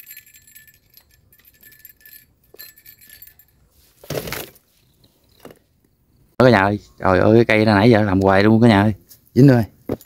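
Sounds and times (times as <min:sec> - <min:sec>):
small bell jingling: 0:00.0 - 0:03.9.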